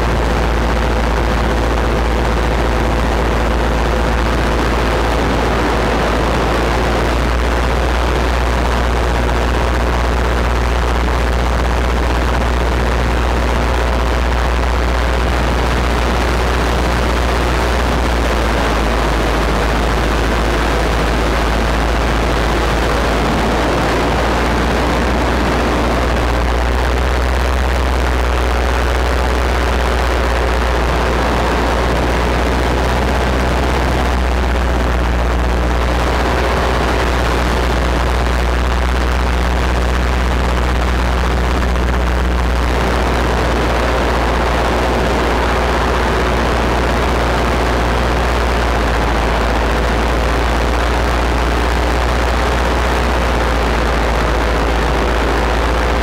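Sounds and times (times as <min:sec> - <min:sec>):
paramotor engine and propeller: 0:00.0 - 0:56.0
wind on microphone: 0:15.4 - 0:39.0.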